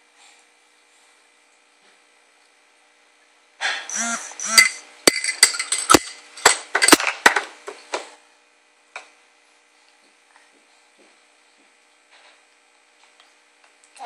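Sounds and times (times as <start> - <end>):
baby squeaking: 3.9 - 4.7.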